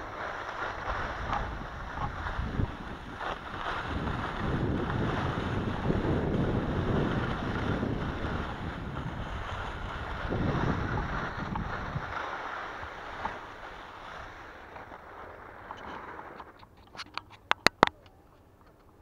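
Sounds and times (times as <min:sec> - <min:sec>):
wind buffeting microphone: 0:00.0 - 0:14.4
skis scraping over snow: 0:00.0 - 0:16.7.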